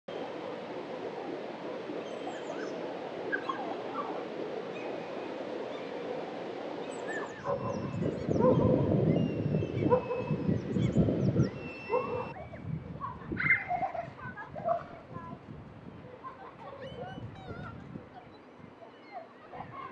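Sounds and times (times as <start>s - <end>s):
river rushing over weir: 0.1s - 8.9s
gulls calling: 0.1s - 19.9s
birds chirping: 1.2s - 15.3s, 15.9s - 19.9s.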